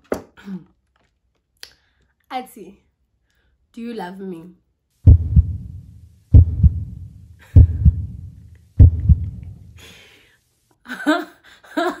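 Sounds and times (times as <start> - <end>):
heartbeat thumps: 5.0 - 9.8
faint breathy hiss: 9.4 - 10.8.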